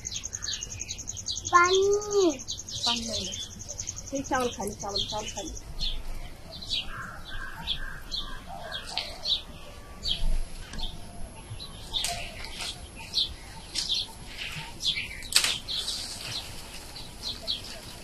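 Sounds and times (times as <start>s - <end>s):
leaves rustling on shaken branch: 11.6s - 18.0s.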